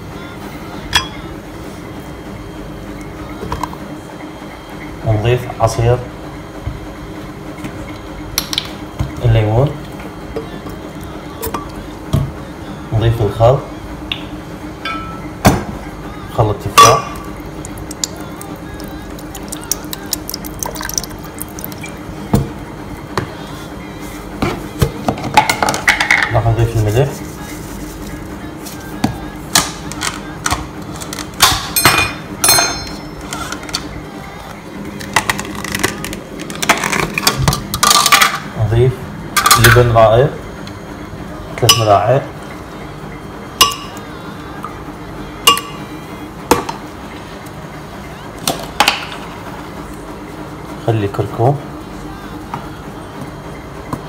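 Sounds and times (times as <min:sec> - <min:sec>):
liquid pouring into blender jar: 0:17.6 - 0:22.0
drips and splashes: 0:19.2 - 0:21.9.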